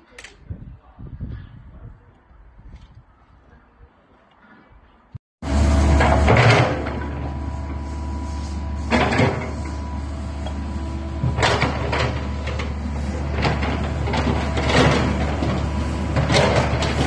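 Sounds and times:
excavator diesel engine under load: 5.4s - 17.0s.

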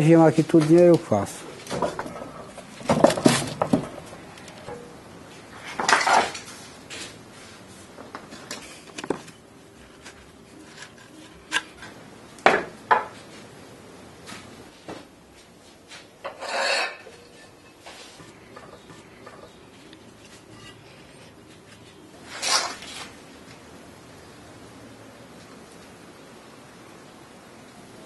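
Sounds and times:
metal scraping: 16.2s - 23.1s.

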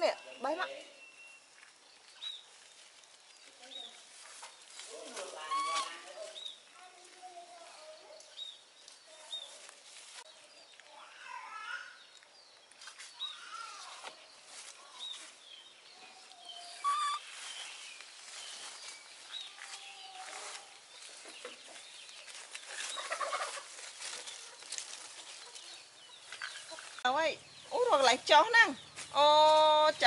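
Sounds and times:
animal chirps and clucks: 5.2s - 6.7s, 16.0s - 29.2s.

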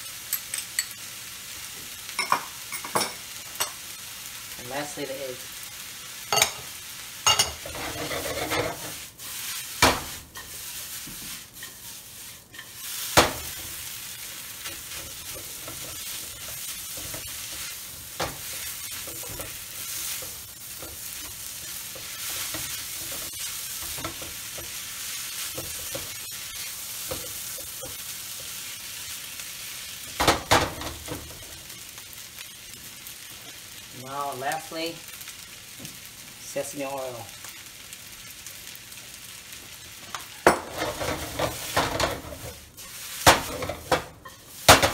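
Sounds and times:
rice sizzling in a wok: 0.0s - 44.9s
spatula stirring: 7.2s - 29.1s, 40.7s - 44.9s.

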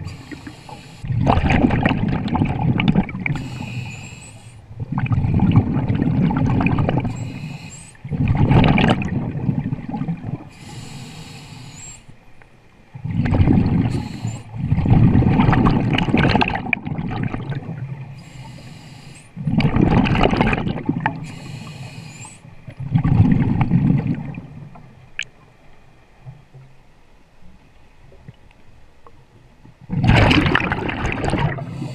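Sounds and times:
hiss of inhaled air: 0.0s - 1.1s, 3.4s - 4.6s, 7.1s - 8.0s, 10.5s - 12.2s, 13.9s - 14.6s, 18.2s - 19.4s, 21.2s - 22.5s
gurgling exhaled bubbles: 0.0s - 3.8s, 4.7s - 10.5s, 13.0s - 18.2s, 19.4s - 21.2s, 22.7s - 24.7s, 29.9s - 31.9s.

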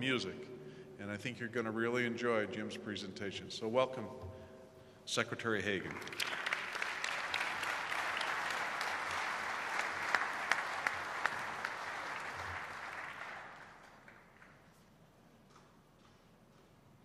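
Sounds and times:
audience applauding: 5.8s - 14.7s.

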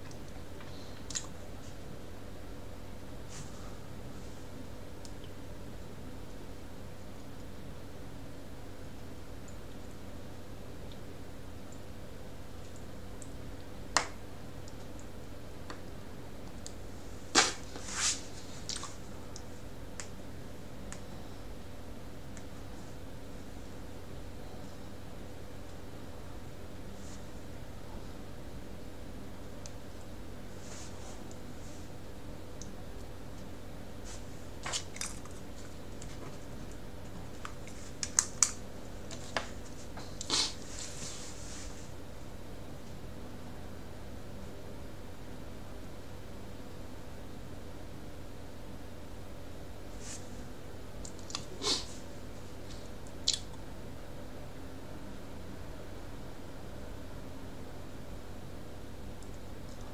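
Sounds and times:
low electrical hum: 0.0s - 59.9s.

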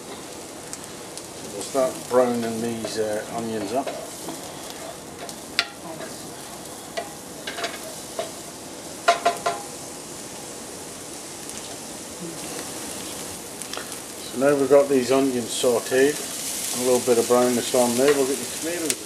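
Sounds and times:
onions sizzling in a frying pan: 0.0s - 19.0s
wooden spatula tapping a pan: 2.8s - 3.0s, 3.6s - 4.4s, 5.2s - 5.8s, 9.1s - 9.7s.

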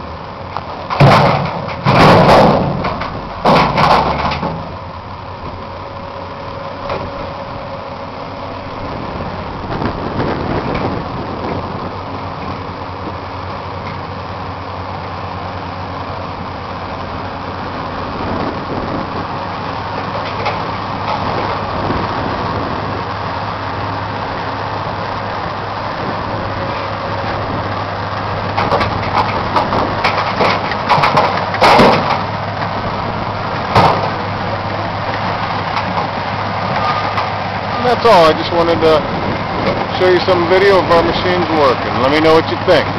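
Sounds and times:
heavy diesel engines running: 0.0s - 42.9s
loud bangs: 0.9s - 4.6s.

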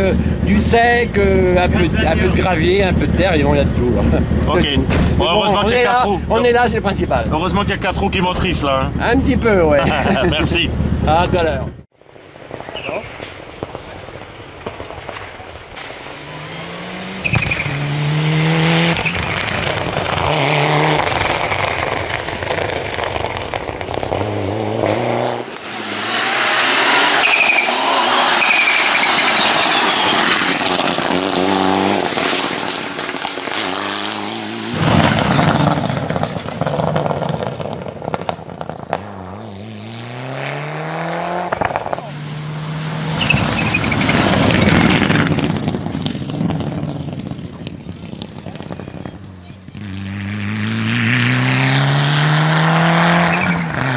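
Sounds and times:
rally car engine at full throttle: 0.0s - 11.8s, 15.8s - 53.9s
car passing by close: 15.8s - 53.9s.

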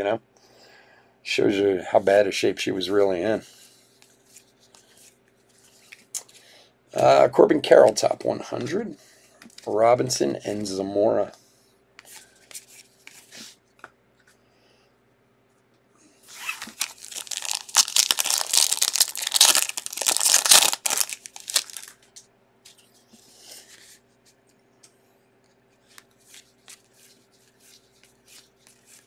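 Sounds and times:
foil wrapper tearing and crinkling: 16.3s - 22.1s
cards clicking and rustling: 16.5s - 22.2s.

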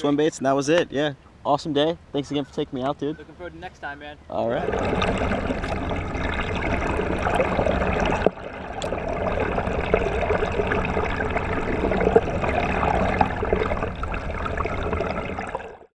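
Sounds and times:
muffled underwater gurgling: 4.4s - 15.9s.

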